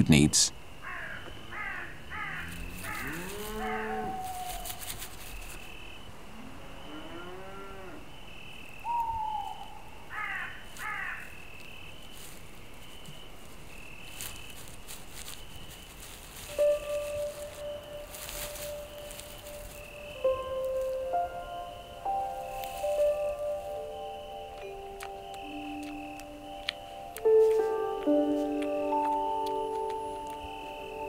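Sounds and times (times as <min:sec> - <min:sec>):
cattle mooing: 0:02.2 - 0:04.2, 0:06.4 - 0:08.0
high chirping: 0:14.0 - 0:31.0.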